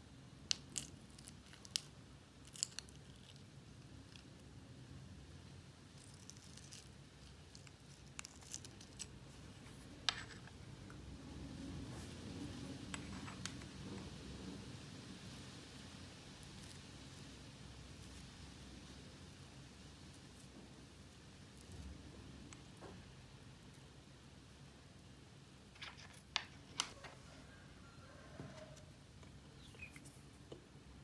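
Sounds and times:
low room hum: 0.0 - 31.0
slime clicking and crackling: 0.5 - 4.3.

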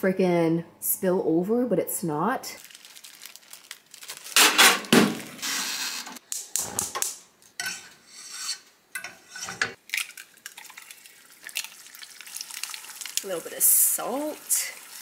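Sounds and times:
knife scraping frying pan: 7.6 - 9.8
eggs cracking: 9.8 - 13.3.

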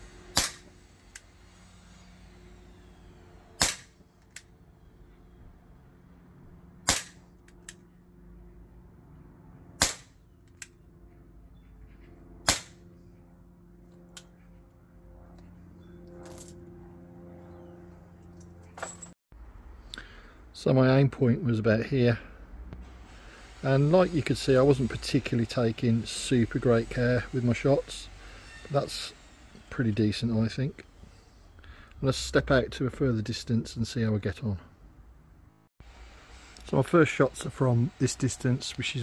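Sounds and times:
air pistol shots cracking: 0.3 - 0.8, 3.6 - 4.0, 6.8 - 7.2, 9.8 - 10.2, 12.4 - 12.8.

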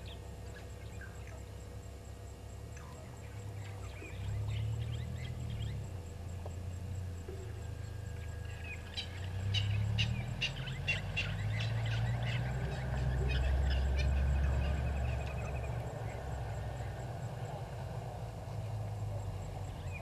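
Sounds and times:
low steady rumble: 0.0 - 20.0
lapwing metallic alarm call: 7.3 - 17.0.

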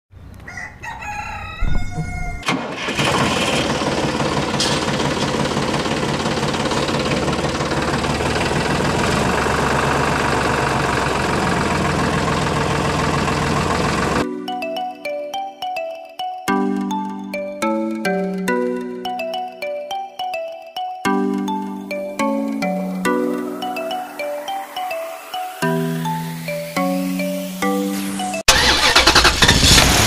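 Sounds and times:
rooster crowing: 0.4 - 2.5, 23.1 - 26.0
engine starting and running: 2.4 - 14.3, 28.0 - 30.0.

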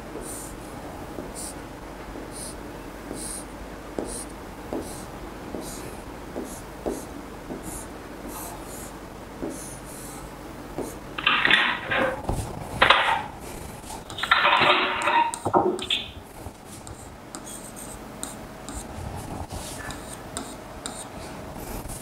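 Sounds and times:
pen scratching strokes: 0.2 - 0.6, 1.2 - 1.6, 2.3 - 11.0, 16.3 - 22.0
stylus tapping on display: 3.1 - 8.4, 10.7 - 13.3, 14.0 - 18.9, 19.8 - 21.1.

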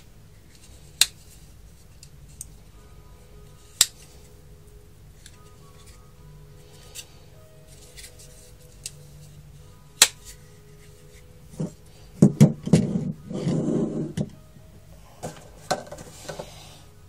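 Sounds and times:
knocks and rustling: 15.2 - 16.5.

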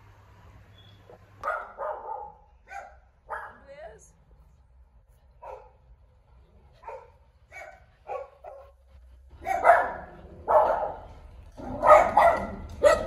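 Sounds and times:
small dog barking: 1.4 - 3.7, 5.4 - 5.8, 6.8 - 8.7, 9.4 - 11.1, 11.7 - 13.0.

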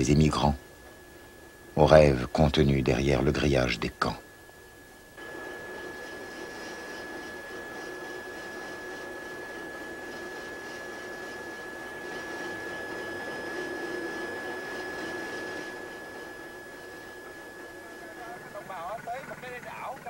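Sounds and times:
high-pitched whine: 0.0 - 20.0
ship machinery hum: 0.0 - 20.0.

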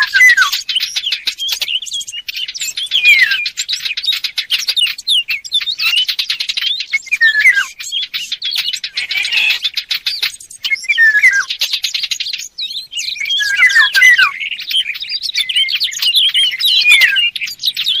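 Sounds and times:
birds twittering and chattering: 0.0 - 18.0
short falling bird whistles: 6.6 - 9.6, 10.6 - 11.5.

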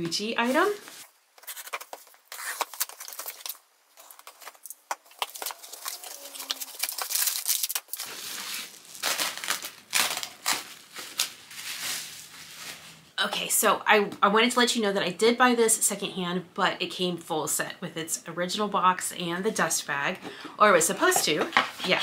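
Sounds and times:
bubble wrap crinkling: 0.4 - 13.2
cardboard tearing and rustling: 0.5 - 13.0.

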